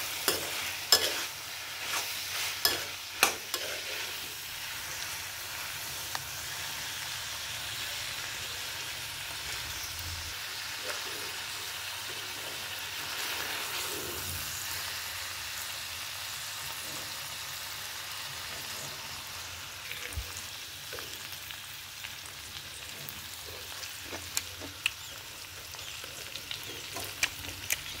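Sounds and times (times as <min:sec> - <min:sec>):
metal spoon scraping a pan: 0:00.0 - 0:05.6
food sizzling in a pan: 0:00.0 - 0:28.0.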